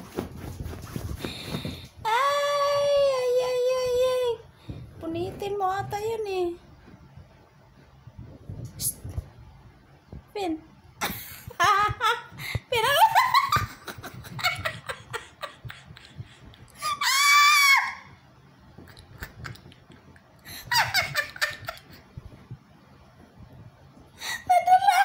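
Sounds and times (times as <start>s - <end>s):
high-pitched vocal squeals: 16.8s - 18.1s
long high held cry: 16.8s - 18.1s.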